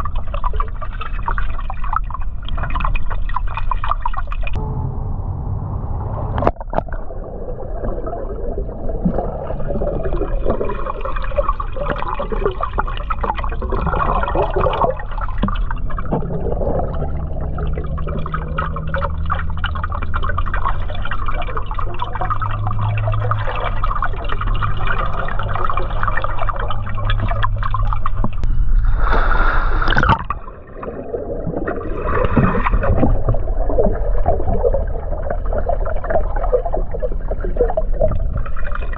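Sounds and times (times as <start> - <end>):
water gurgling and bubbling: 0.0 - 4.7, 5.6 - 38.9
faint steady whine: 4.6 - 8.3.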